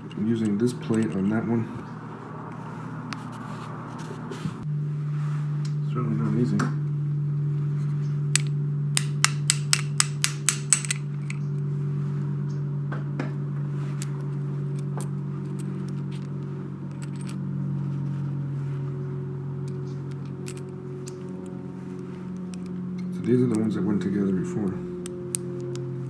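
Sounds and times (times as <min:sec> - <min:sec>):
steady low hum: 0:00.0 - 0:26.0
ratchet clicking: 0:08.4 - 0:11.4.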